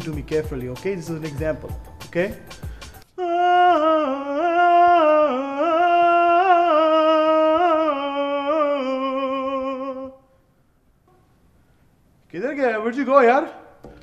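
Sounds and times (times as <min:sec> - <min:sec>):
man singing unaccompanied: 0:03.2 - 0:10.3.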